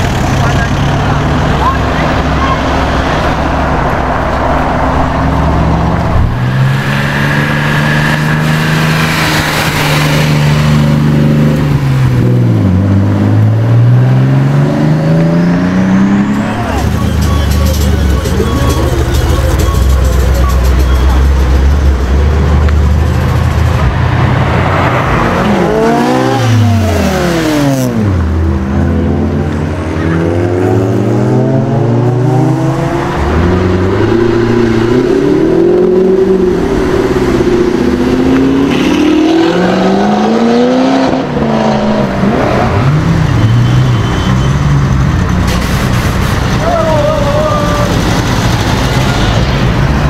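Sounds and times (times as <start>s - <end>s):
car engines revving: 0.0s - 50.0s
deep engine rumble: 9.6s - 27.4s.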